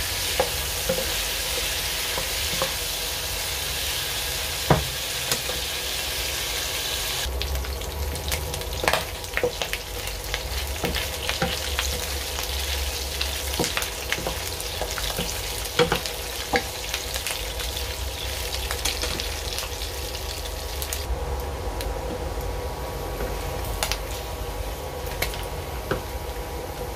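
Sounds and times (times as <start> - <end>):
meat sizzling in a pan: 0.0 - 21.1.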